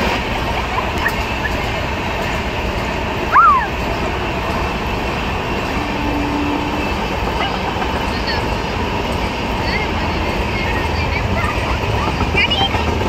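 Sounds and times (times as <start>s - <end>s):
train coaches rumbling on track: 0.0s - 13.0s
loud wheel squeal: 3.3s - 3.7s.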